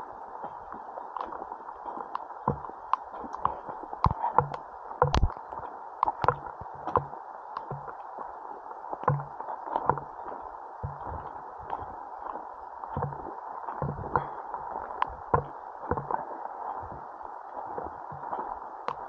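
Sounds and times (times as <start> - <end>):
sharp taps: 4.1 - 5.4.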